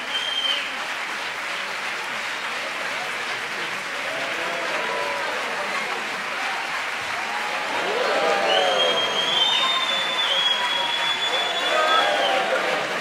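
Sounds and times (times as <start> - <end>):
audience applauding: 0.0 - 13.0
voices calling out: 7.5 - 13.0.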